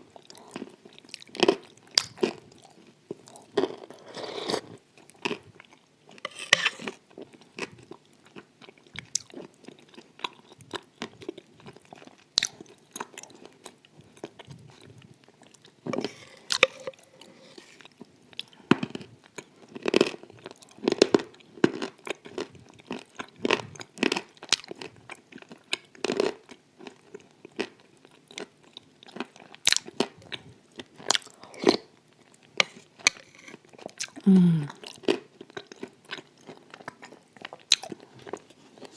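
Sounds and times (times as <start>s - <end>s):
wet chewing: 28.2s - 38.9s.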